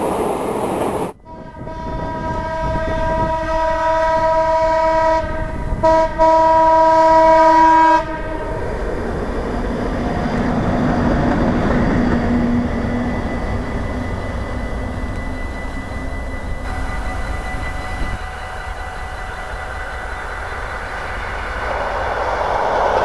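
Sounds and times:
train wheels rumbling: 0.0 - 23.0
locomotive horn blasts: 1.2 - 8.6, 16.4 - 20.5.

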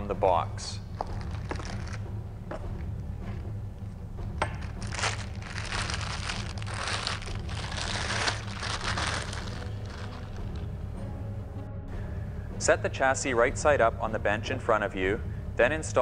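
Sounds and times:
plastic bag crinkling: 4.8 - 10.6.

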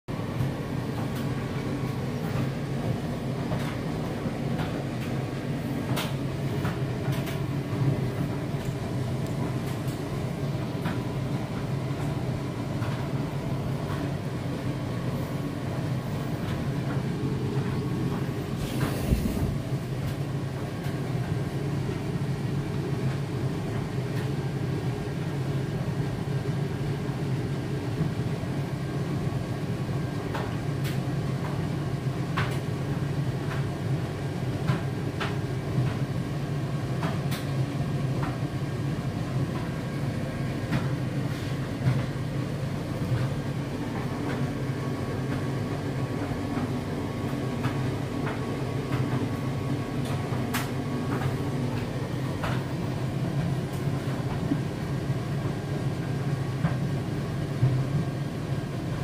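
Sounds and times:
washing machine running: 0.1 - 59.0
clicks and knocks in washing machine: 34.6 - 36.1, 36.9 - 38.5, 50.0 - 52.8.

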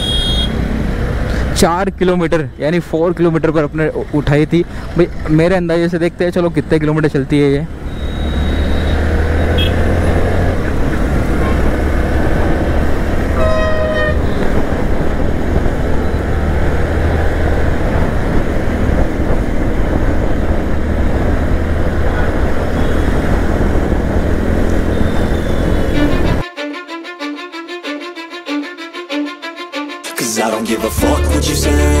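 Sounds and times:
vehicle horn: 0.0 - 0.6, 7.9 - 10.0, 13.3 - 14.5, 24.9 - 26.8
motorcycle engine drone: 7.6 - 26.4
wind rush: 10.0 - 26.5.

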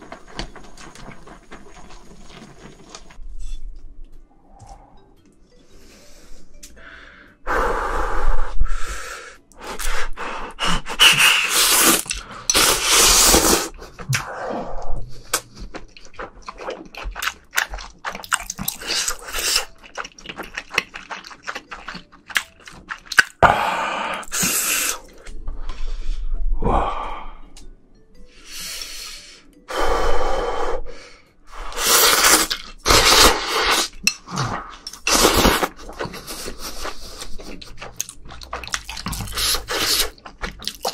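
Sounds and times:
noodles slurping: 0.0 - 3.2, 11.0 - 14.3, 31.7 - 40.9
wet chewing: 15.2 - 23.4, 32.0 - 40.9.

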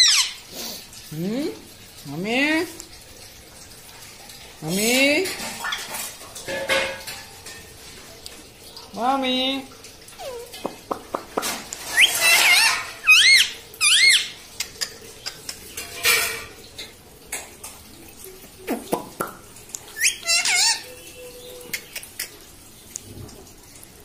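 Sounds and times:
parakeet squawking: 0.0 - 0.5, 11.8 - 15.7, 19.9 - 22.3.

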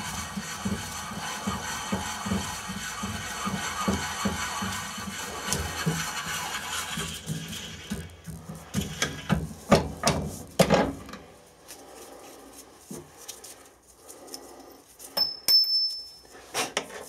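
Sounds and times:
high metallic ring: 15.2 - 16.4.

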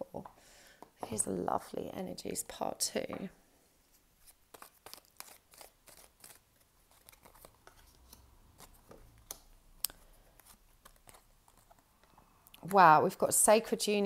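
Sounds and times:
cards being shuffled: 4.2 - 9.5, 10.3 - 12.1.

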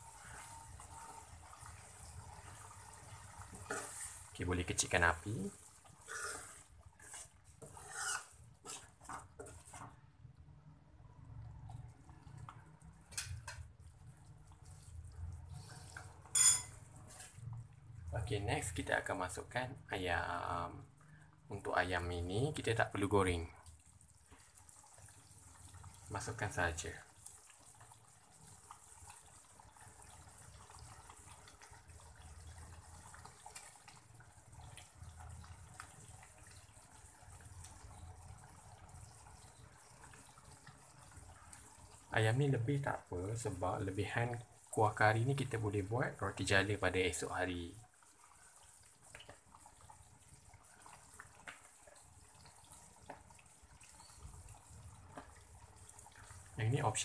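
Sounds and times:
low steady hiss: 0.0 - 7.8, 8.4 - 57.0.

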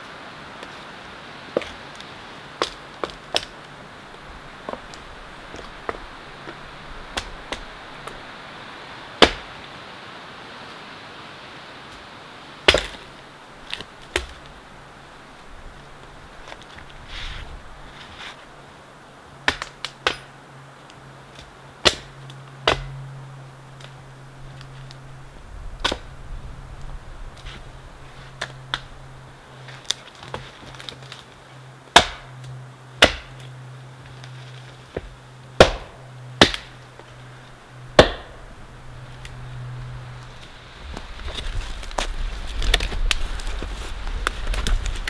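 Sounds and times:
hatchet chopping wood: 2.6 - 3.6, 9.2 - 9.5, 12.7 - 13.1, 19.4 - 20.3, 21.3 - 23.0, 25.8 - 26.0, 31.9 - 32.3, 33.0 - 33.4, 34.9 - 36.8, 38.0 - 38.4.

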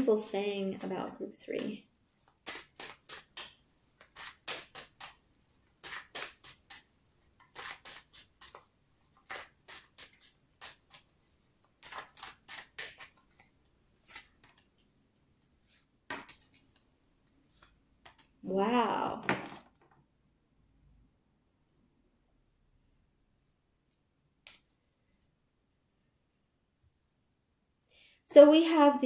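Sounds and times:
cards being shuffled: 2.1 - 14.9, 15.6 - 16.9, 17.5 - 18.4.

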